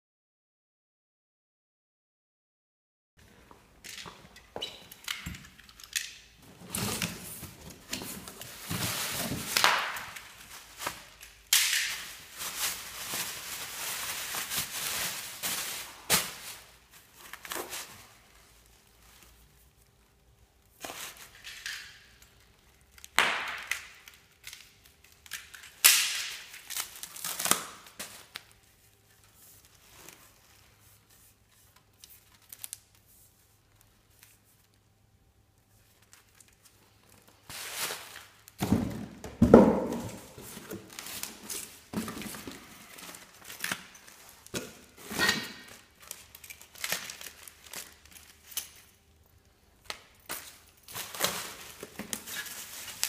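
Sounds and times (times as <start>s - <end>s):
bubble wrap and plastic crinkling: 5.0s - 53.0s
knocks on cardboard boxes: 38.6s - 40.4s.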